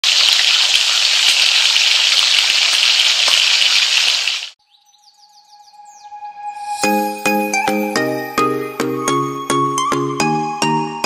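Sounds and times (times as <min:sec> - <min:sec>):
hot oil sizzling and popping: 0:00.0 - 0:04.6.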